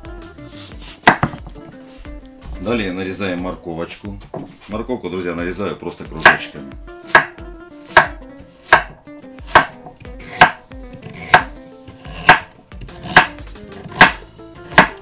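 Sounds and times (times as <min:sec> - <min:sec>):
knife chopping carrots on a board: 0:00.6 - 0:01.7, 0:06.2 - 0:15.0.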